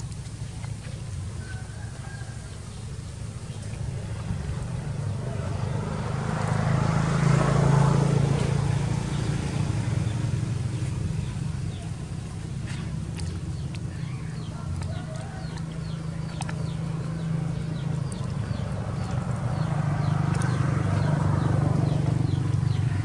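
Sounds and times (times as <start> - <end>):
vehicle engine hum passing: 0.0 - 23.0.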